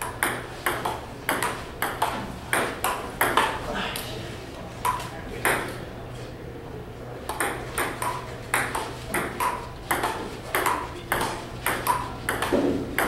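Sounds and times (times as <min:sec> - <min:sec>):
table tennis ball clicking: 0:00.0 - 0:03.6, 0:07.3 - 0:13.0.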